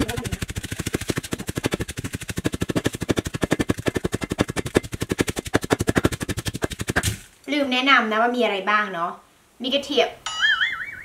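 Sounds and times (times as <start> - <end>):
wooden pestle pounding in mortar: 0.0 - 7.2.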